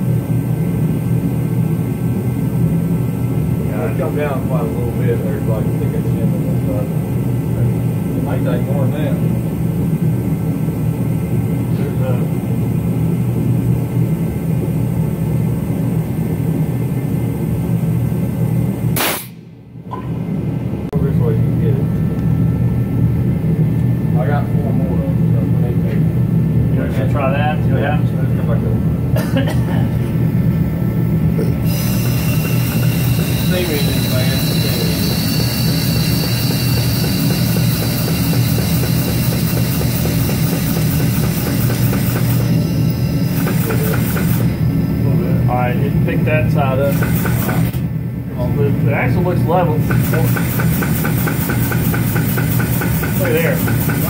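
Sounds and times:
machinery droning: 0.0s - 54.0s
jack drive humming and ticking: 25.2s - 54.0s.

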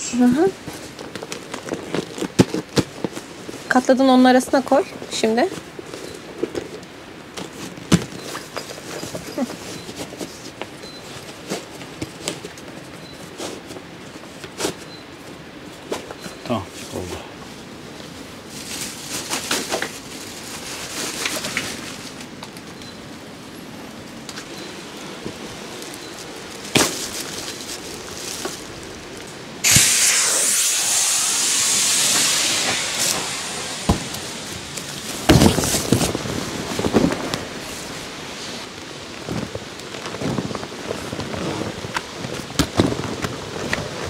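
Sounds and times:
tent fabric rustling: 0.0s - 22.8s, 24.0s - 30.3s, 32.3s - 44.0s
air hissing out of tent: 29.6s - 38.8s.

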